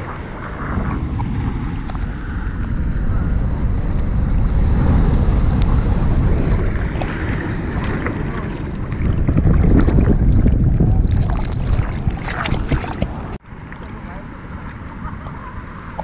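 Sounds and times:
wind buffeting microphone: 0.0 - 16.0
surf hissing: 1.6 - 13.4
water sloshing: 1.8 - 14.0.

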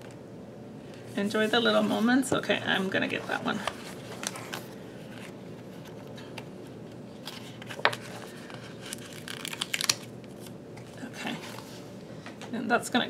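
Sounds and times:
low background hum: 0.0 - 13.0
paper rustling: 7.2 - 10.5.

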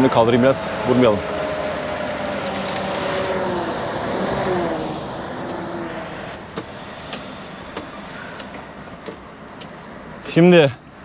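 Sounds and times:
diesel truck engine straining: 0.0 - 11.0.

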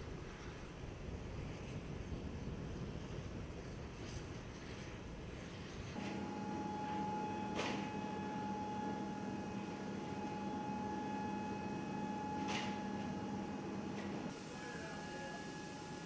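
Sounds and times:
steady machine hum: 5.8 - 16.0.

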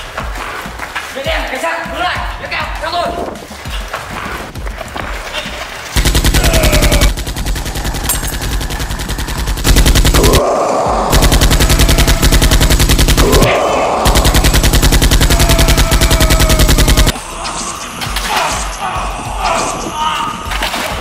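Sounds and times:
automatic gunfire: 6.0 - 10.4, 11.1 - 17.2.

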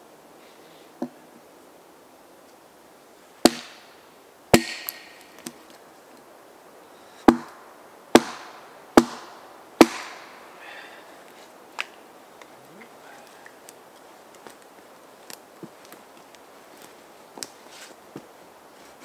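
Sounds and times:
hatchet chopping firewood: 3.4 - 3.9, 4.5 - 5.7, 7.2 - 10.4.

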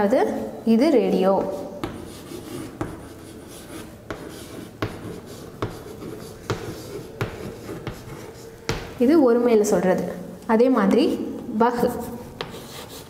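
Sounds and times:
chalk scratching on chalkboard: 1.1 - 9.1, 12.0 - 13.0
chalk tapping on board: 1.4 - 9.0, 12.4 - 13.0.

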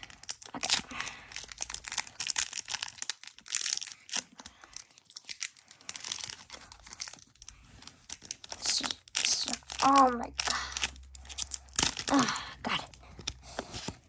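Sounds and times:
foil wrapper crinkling and tearing: 0.0 - 14.0.

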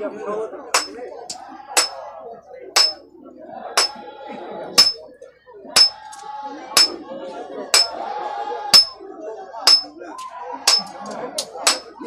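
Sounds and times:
metallic strikes ringing: 0.8 - 1.0, 2.8 - 3.0, 4.8 - 5.0, 5.8 - 6.1, 7.8 - 8.0, 8.8 - 9.0, 9.7 - 9.9, 10.7 - 10.9, 11.7 - 11.9.

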